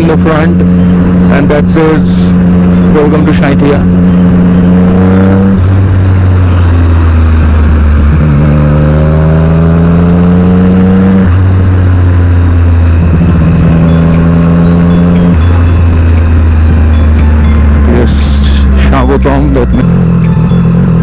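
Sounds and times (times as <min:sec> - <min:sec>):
motorcycle engine accelerating: 0:00.0 - 0:21.0.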